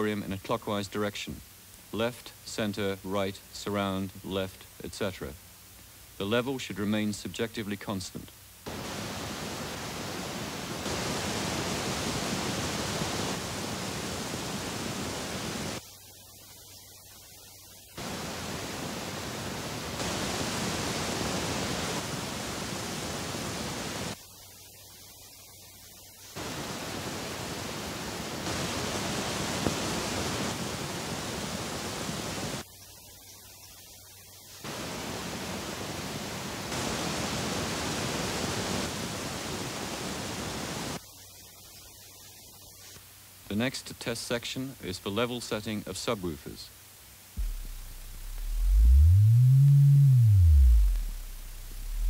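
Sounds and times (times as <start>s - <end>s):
pink noise test signal: 0.0s - 33.7s, 47.3s - 52.0s.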